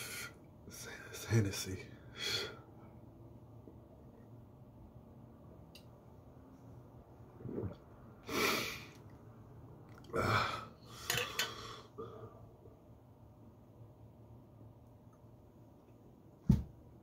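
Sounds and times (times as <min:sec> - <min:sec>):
man exhaling and gasping: 0:10.1 - 0:12.4.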